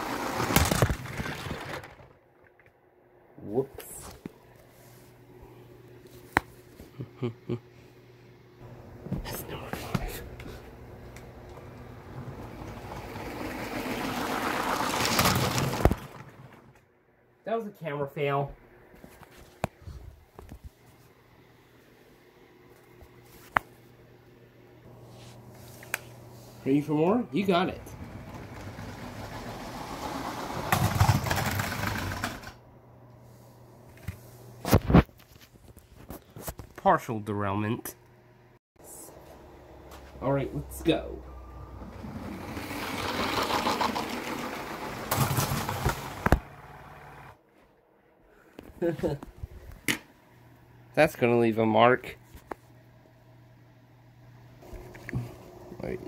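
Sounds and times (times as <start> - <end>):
plastic clattering crash: 0.0 - 2.6, 12.6 - 16.8, 28.1 - 32.6, 42.2 - 46.5
toy train motor whirring on track: 42.2 - 45.1.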